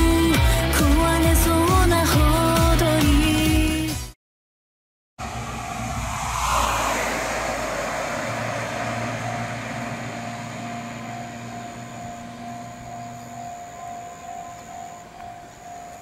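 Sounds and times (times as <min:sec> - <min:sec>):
faint pulsing tone: 0:05.2 - 0:16.0
outdoor background noise: 0:05.2 - 0:16.0.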